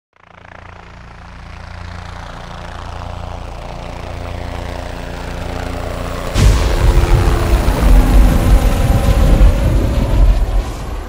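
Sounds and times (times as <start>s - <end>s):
low droning rumble: 6.4s - 11.0s.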